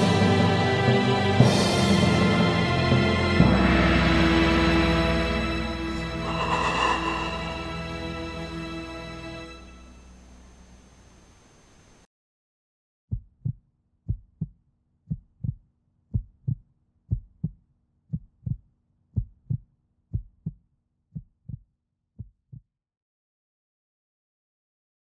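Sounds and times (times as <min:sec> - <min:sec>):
faint steady hum: 0:06.0 - 0:12.1
heartbeat thumps: 0:13.1 - 0:22.6.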